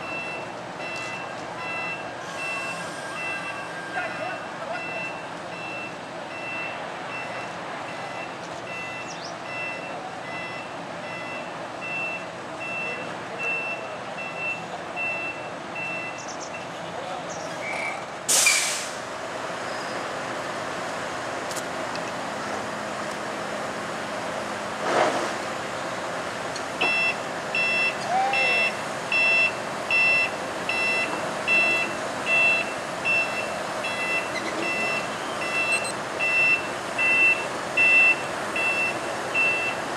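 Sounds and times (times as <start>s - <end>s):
multi-tone warning beeper: 0.0s - 16.7s, 26.8s - 39.8s
truck reversing alarm beeps: 0.0s - 16.8s, 26.8s - 39.9s
truck engine noise: 0.0s - 39.9s
loud short hiss: 18.3s - 19.1s.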